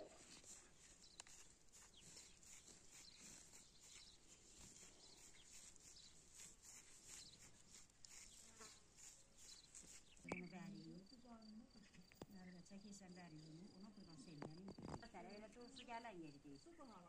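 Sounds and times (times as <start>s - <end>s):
high-pitched insect chirping: 1.3s - 12.2s.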